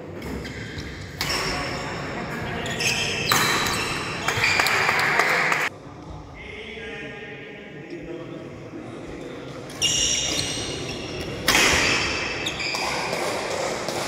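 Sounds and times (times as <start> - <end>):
shoes squeaking on floor: 2.5 - 4.9, 9.8 - 13.3
rackets hitting shuttlecock: 3.2 - 5.5, 11.2 - 14.0.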